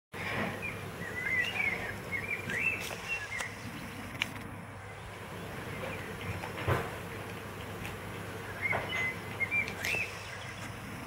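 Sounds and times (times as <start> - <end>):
bird chirping: 0.4 - 11.0
puppy gnawing on bone: 5.4 - 10.0.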